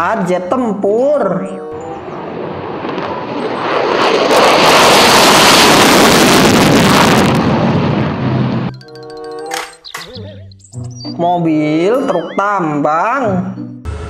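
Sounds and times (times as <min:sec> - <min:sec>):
fighter jet roar taking off: 0:01.7 - 0:08.7.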